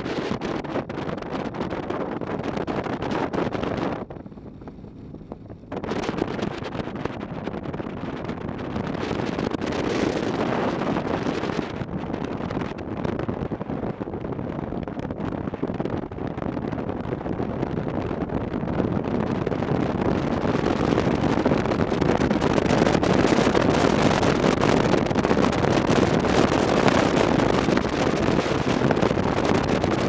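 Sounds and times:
wind buffeting microphone: 0.0s - 30.0s
motorcycle engine running: 3.8s - 6.6s.

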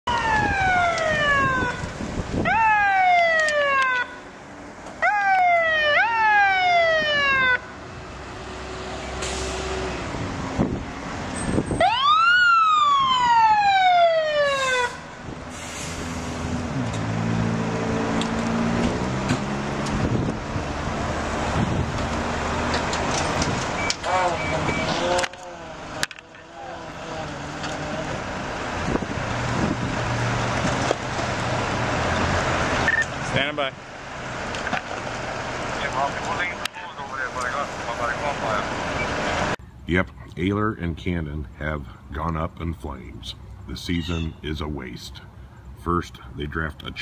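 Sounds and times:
emergency vehicle siren: 0.0s - 7.9s, 11.4s - 15.3s, 17.4s - 33.1s.

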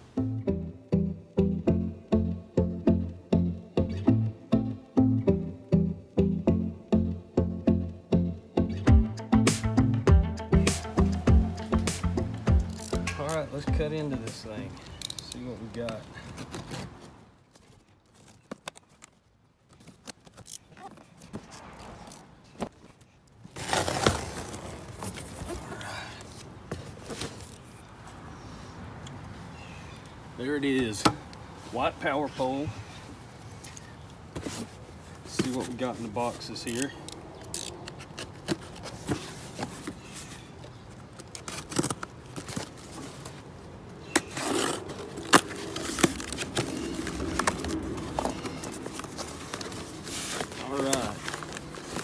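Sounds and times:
knife slitting packing tape: 12.6s - 13.2s
packaging rustling: 44.3s - 52.0s.

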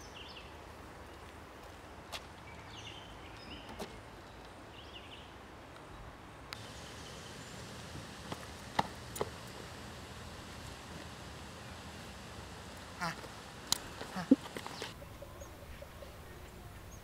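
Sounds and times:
steady background hiss: 0.0s - 17.0s
small birds chirping: 6.6s - 10.1s, 11.6s - 17.0s
sharp clicks: 13.6s - 14.9s.

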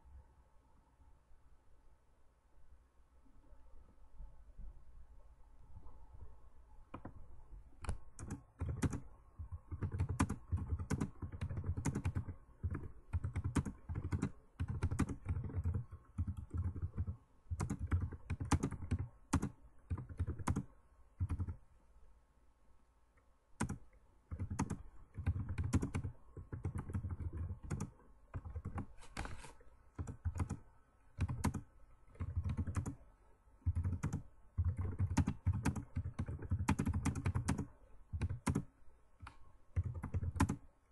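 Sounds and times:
typing on a computer keyboard: 7.8s - 21.6s, 23.6s - 29.0s, 30.0s - 30.6s, 31.2s - 33.0s, 33.6s - 40.6s.

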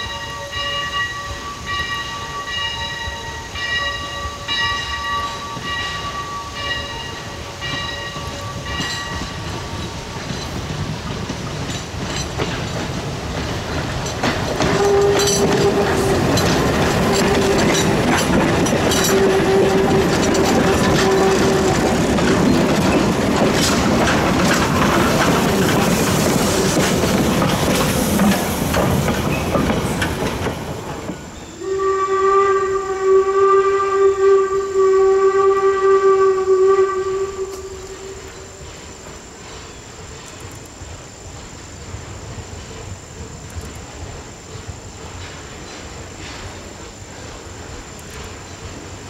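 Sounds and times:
train wheels clattering over rails: 1.7s - 31.8s, 37.4s - 49.0s
steam locomotive whistle: 14.6s - 22.6s, 31.5s - 38.7s.

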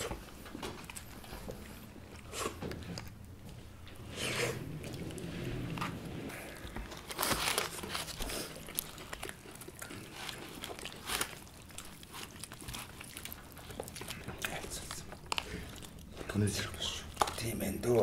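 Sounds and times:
chewing: 0.0s - 18.0s
meat tearing by hand: 6.8s - 17.5s.

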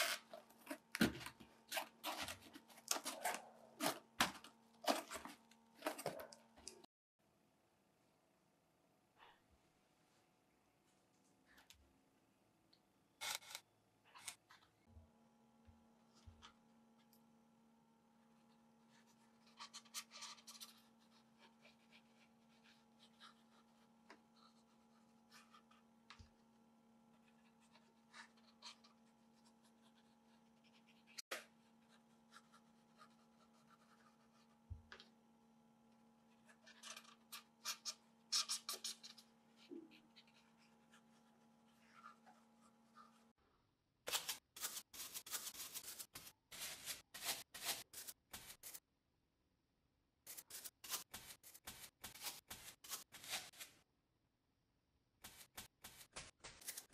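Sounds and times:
brush scratching on foam: 18.4s - 25.8s, 27.1s - 34.6s, 44.2s - 48.8s, 50.3s - 53.8s, 55.2s - 56.9s
hot knife scratching foam: 44.1s - 48.8s, 50.3s - 53.8s.

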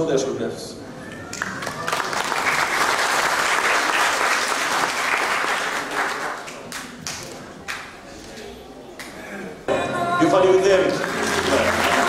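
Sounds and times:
audience applauding: 1.3s - 7.9s, 10.8s - 12.0s.

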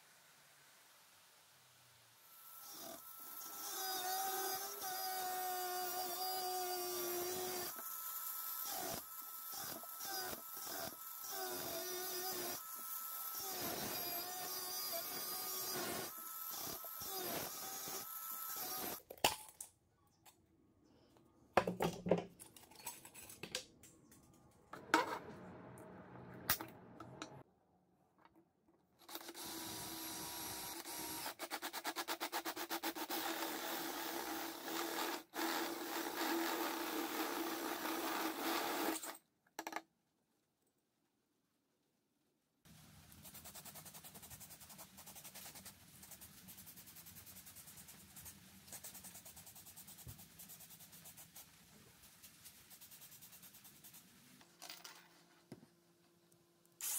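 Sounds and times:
electric drill boring through steel: 2.3s - 19.0s, 29.1s - 31.3s, 33.2s - 39.2s.

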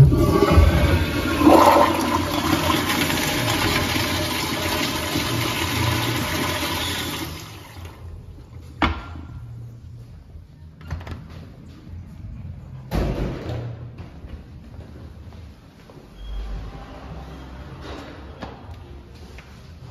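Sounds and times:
toilet flushing: 0.0s - 8.1s.

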